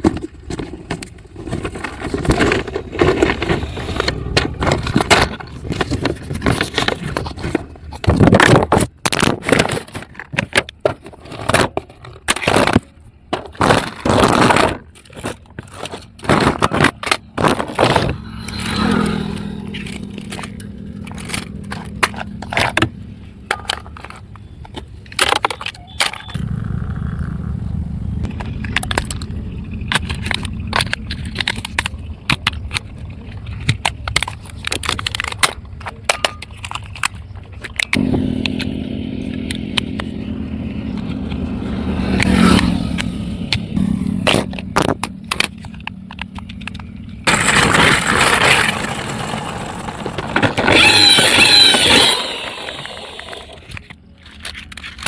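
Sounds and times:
plastic toys clicking and knocking: 0:00.0 - 0:26.4, 0:28.2 - 0:38.7, 0:44.2 - 0:55.0
rushing whir: 0:17.6 - 0:22.4, 0:47.2 - 0:53.8.

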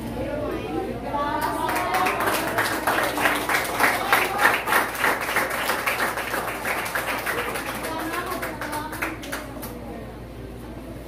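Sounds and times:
audience clapping: 0:01.3 - 0:09.8.

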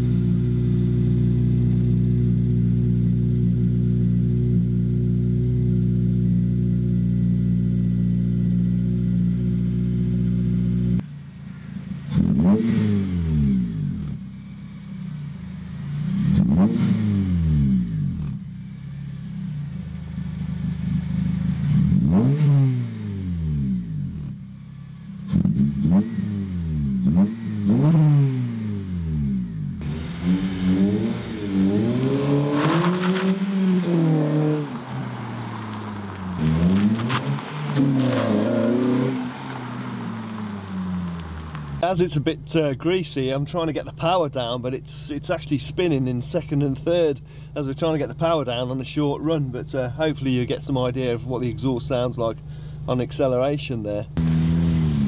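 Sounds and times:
car engine revving: 0:00.0 - 0:52.5, 0:54.0 - 0:55.0
car accelerating hard: 0:12.0 - 0:14.2, 0:15.8 - 0:18.4, 0:21.0 - 0:24.4, 0:25.3 - 0:41.9, 0:54.2 - 0:55.0.

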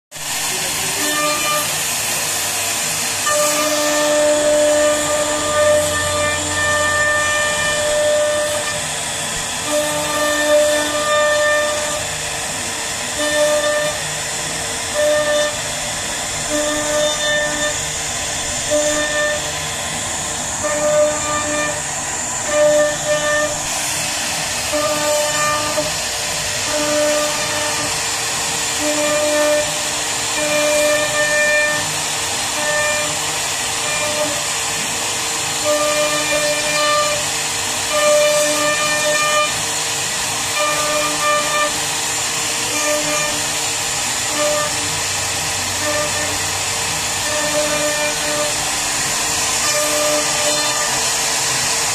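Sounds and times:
wood router whining: 0:00.2 - 0:51.9
pitched hum of router head: 0:00.6 - 0:33.2.

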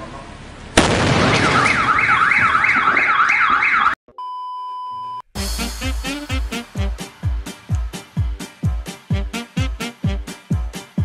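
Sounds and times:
firework blast: 0:00.8 - 0:02.0
car alarm wailing: 0:01.4 - 0:04.0
steady test-pattern beep: 0:04.1 - 0:05.2.

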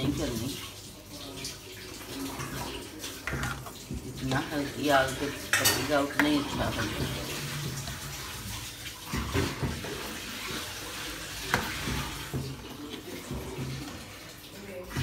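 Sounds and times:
ladle stirring liquid in a pan: 0:00.0 - 0:15.0
ladle knocking a pan: 0:03.2 - 0:08.0, 0:11.4 - 0:14.0.

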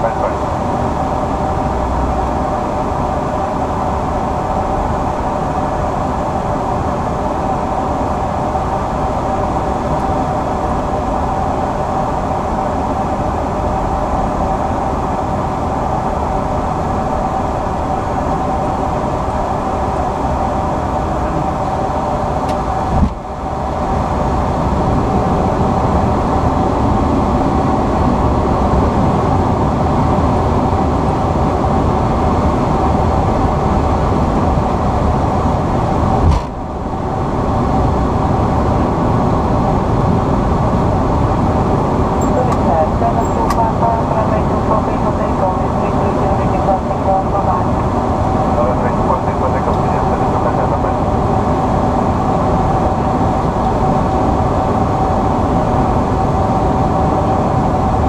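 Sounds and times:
cockpit airflow and engine hum: 0:00.0 - 0:58.0
steady tone: 0:42.0 - 0:58.0.

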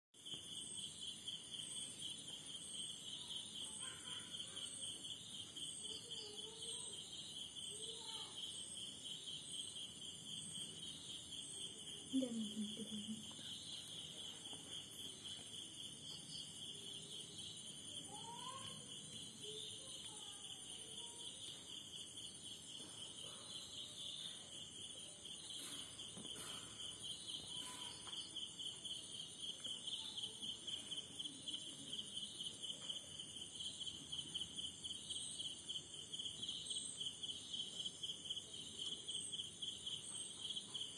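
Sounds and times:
crickets trilling: 0:00.2 - 0:40.9.

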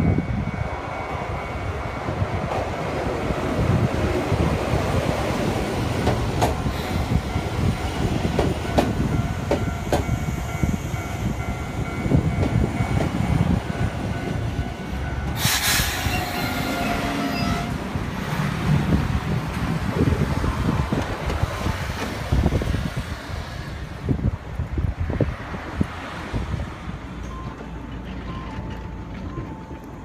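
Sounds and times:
electric train braking: 0:15.0 - 0:17.7
compressed air hiss: 0:15.4 - 0:16.2.

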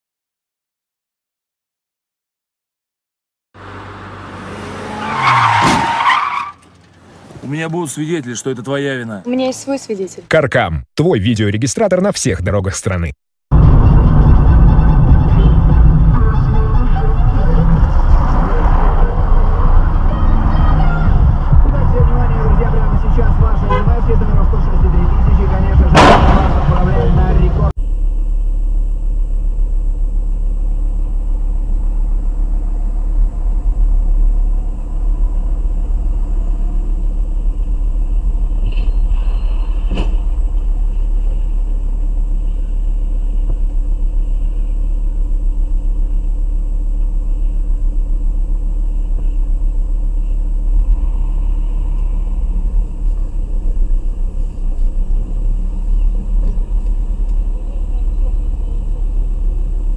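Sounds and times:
car engine and road noise: 0:03.5 - 0:59.9
car crash bang: 0:05.2 - 0:07.4, 0:25.9 - 0:27.0
high squeal: 0:38.5 - 0:40.4.

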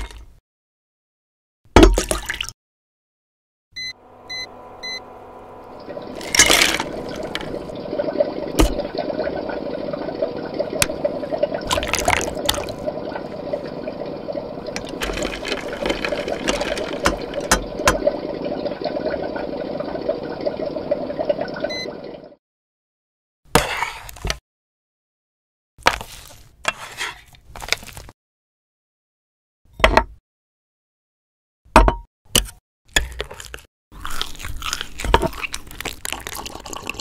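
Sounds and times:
cooktop beep: 0:03.8 - 0:05.1, 0:21.5 - 0:22.3
liquid bubbling in pot: 0:05.7 - 0:22.4, 0:34.0 - 0:37.0
ingredients splashing into pot: 0:06.1 - 0:07.7, 0:11.6 - 0:13.4, 0:14.7 - 0:18.0.

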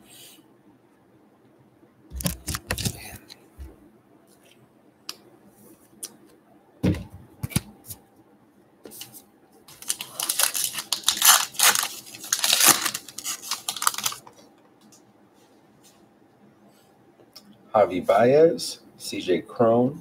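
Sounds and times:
wrapper tearing and crinkling: 0:09.7 - 0:14.3.

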